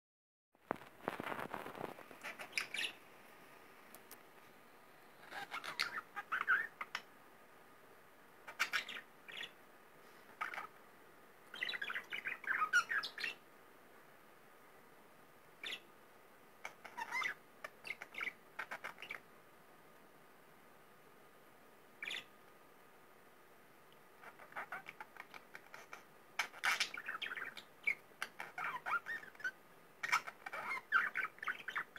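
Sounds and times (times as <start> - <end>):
budgerigar chattering and chirping: 2.2 - 3.0, 5.2 - 7.1, 8.5 - 9.6, 11.6 - 13.4, 16.6 - 19.2, 22.0 - 22.3, 24.2 - 31.9.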